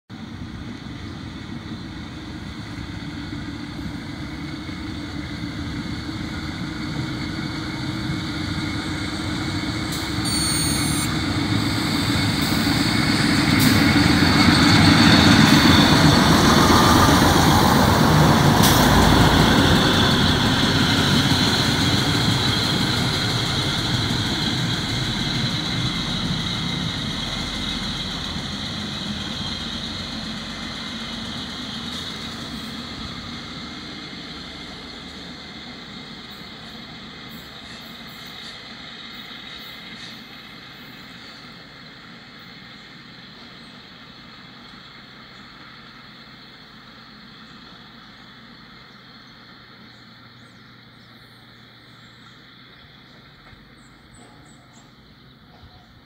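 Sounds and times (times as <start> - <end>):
diesel railcar passing: 0.1 - 56.0
short high-pitched squeal: 9.9 - 12.9.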